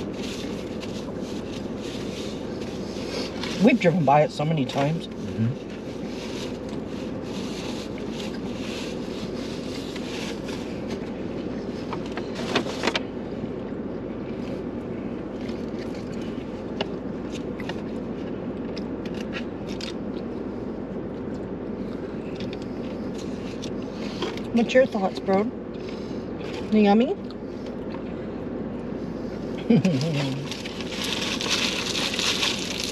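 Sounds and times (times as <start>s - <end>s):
car cabin hum: 0.0s - 32.9s
cardboard boxes and wrappers rustling: 30.2s - 32.9s.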